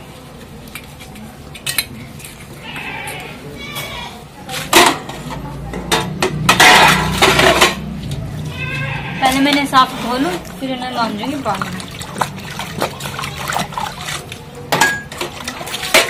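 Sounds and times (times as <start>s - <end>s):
steel dishes clattering: 4.7s - 8.0s, 14.7s - 16.0s.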